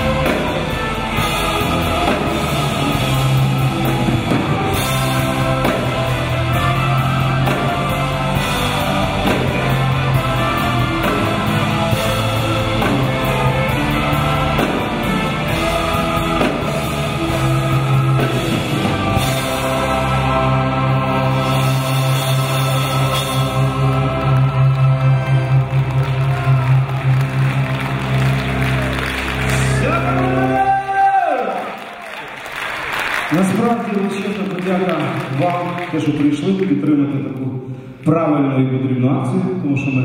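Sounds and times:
choir singing: 0.0 - 26.3
bass guitar: 0.0 - 31.3
orchestra playing: 0.0 - 37.2
person singing: 29.5 - 31.6.

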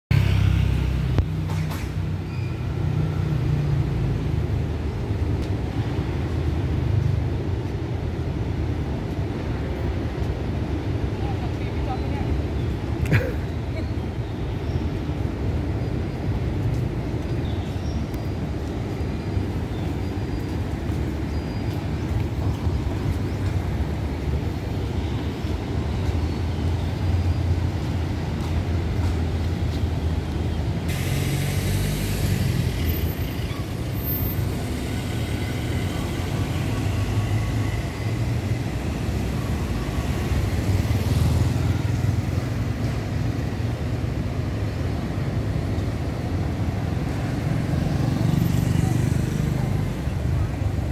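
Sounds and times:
motorcycle passing: 0.1 - 1.2, 30.9 - 38.4, 47.2 - 50.4
low rumble of traffic: 0.1 - 50.9.

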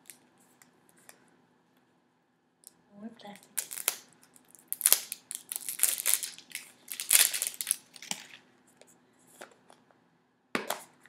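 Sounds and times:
sticky tape peeling off plastic: 3.6 - 8.2.

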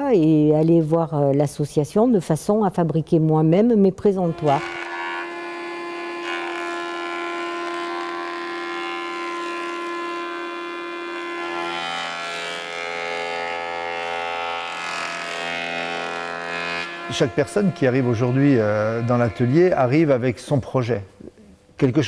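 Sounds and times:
jointer machine whine: 4.3 - 20.0.

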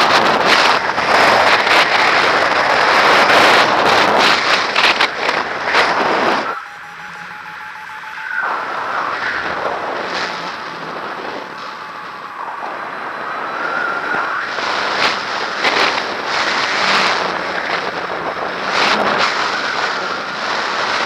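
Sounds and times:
wind buffeting microphone: 0.0 - 21.0
faint steady tone: 6.4 - 14.4.

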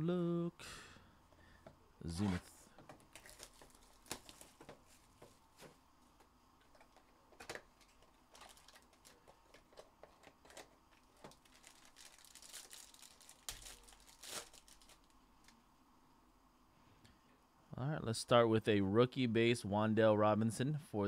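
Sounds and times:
cards shuffling: 2.1 - 5.8, 6.6 - 15.1
plastic wrapper crinkling and tearing: 3.1 - 4.8, 7.4 - 15.6.

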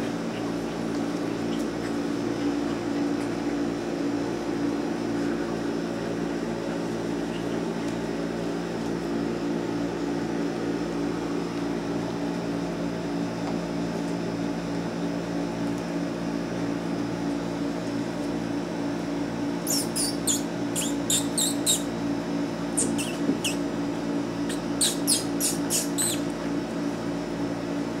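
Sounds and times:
steady low hum: 14.0 - 28.0
puppies squeaking: 19.7 - 22.0, 22.7 - 23.6, 24.5 - 26.3.

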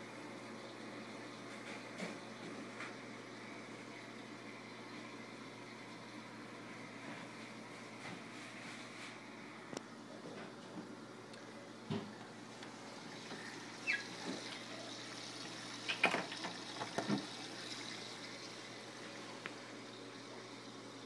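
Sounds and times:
aquarium water trickling: 0.0 - 21.0.

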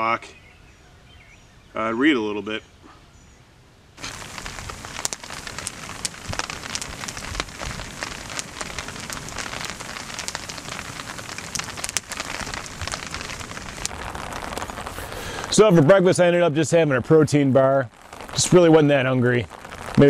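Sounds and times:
campfire crackling and popping: 4.0 - 20.0.

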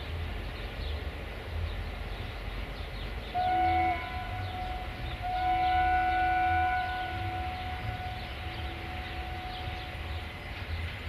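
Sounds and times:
train rumbling: 0.0 - 11.0
locomotive horn blasts: 3.3 - 10.4.

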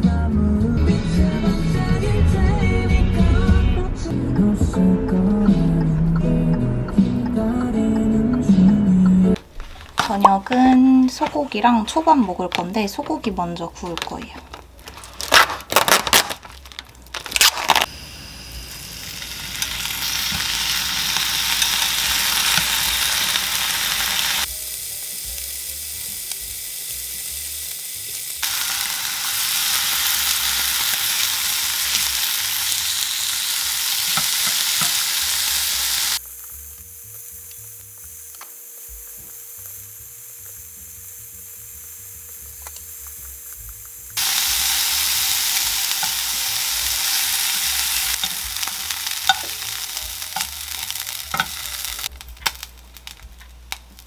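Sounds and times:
beef sizzling in a frying pan: 16.5 - 54.0
metal tongs clicking on pan: 49.2 - 49.6, 51.3 - 51.7.

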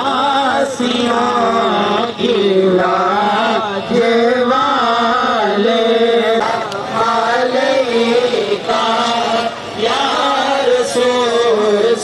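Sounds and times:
person chanting melodically: 0.0 - 12.0.

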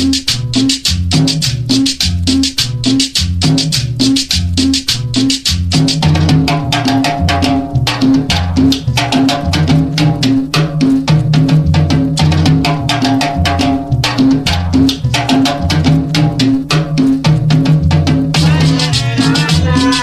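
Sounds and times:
bouncing bass line: 0.0 - 20.0
hand percussion: 0.0 - 20.0
held melody line: 18.3 - 20.0.

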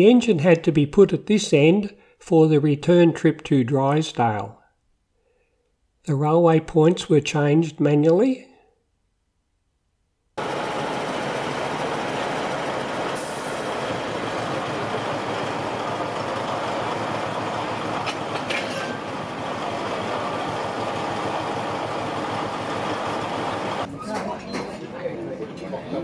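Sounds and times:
locomotive engine running: 10.4 - 23.9
short squeak: 18.1 - 19.0.

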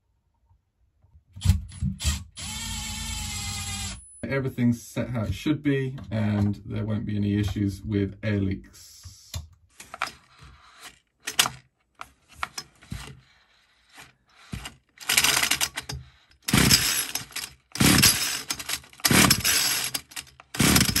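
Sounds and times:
recoil starter pulls whirring: 14.3 - 21.0.

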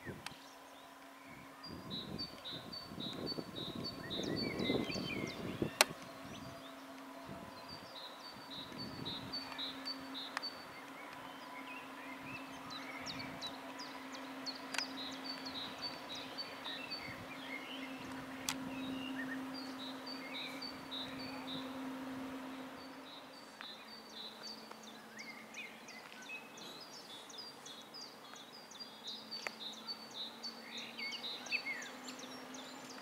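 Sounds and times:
electric train humming: 0.0 - 33.0
songbirds chirping: 0.0 - 33.0
sharp clicks: 14.7 - 15.6.

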